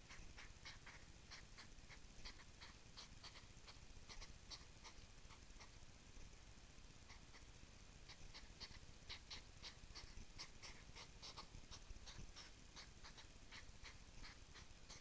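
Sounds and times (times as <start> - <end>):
hedgehogs huffing: 8.1 - 15.0.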